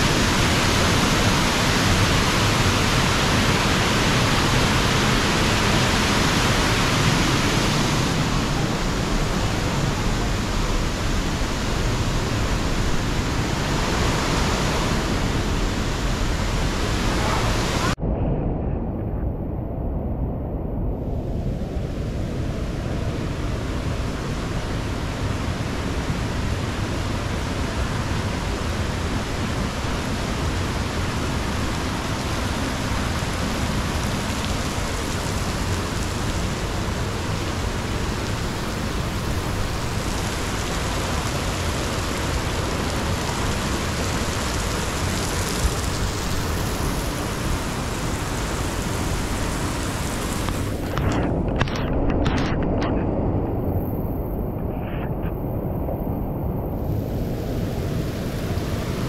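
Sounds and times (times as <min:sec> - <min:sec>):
waterfall rushing: 0:25.0 - 0:51.1.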